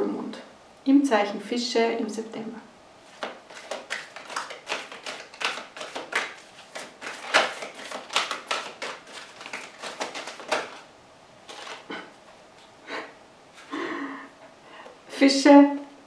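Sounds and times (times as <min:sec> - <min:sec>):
cards being shuffled: 0:03.1 - 0:12.7.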